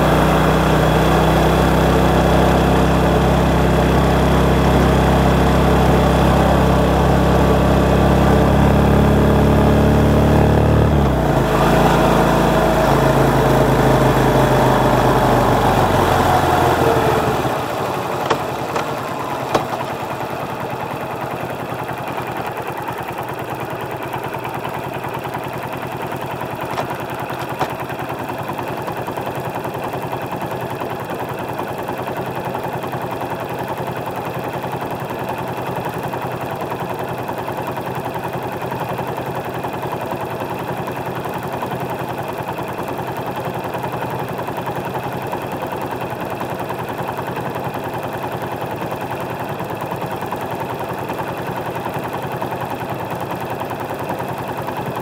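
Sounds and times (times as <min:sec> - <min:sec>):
motorcycle engine: 0:00.0 - 0:33.0.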